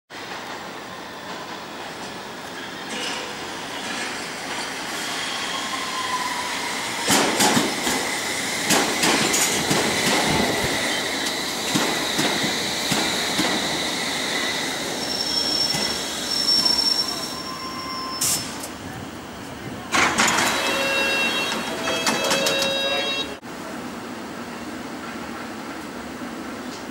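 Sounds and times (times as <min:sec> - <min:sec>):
high wheel squeal: 0:02.6 - 0:07.1, 0:09.3 - 0:18.7, 0:20.2 - 0:23.4
wheels clacking over rail joints: 0:07.1 - 0:13.7, 0:19.9 - 0:23.2.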